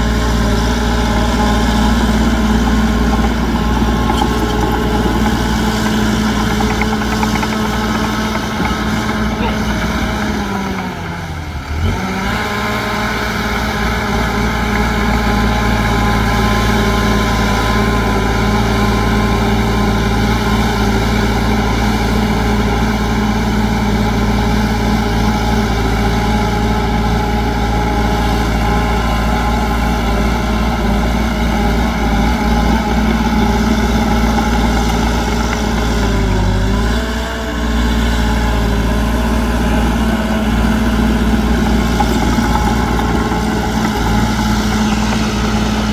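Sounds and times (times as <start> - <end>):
diesel construction machine engine: 0.0 - 45.9.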